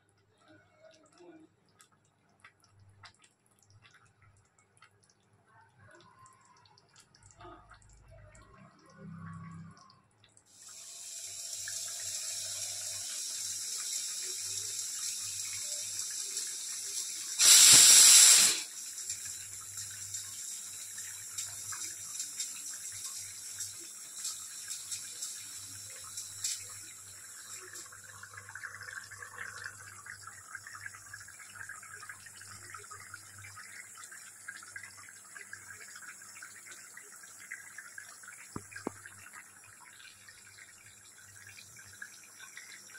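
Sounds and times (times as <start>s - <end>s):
curry simmering and bubbling: 0.0s - 10.9s.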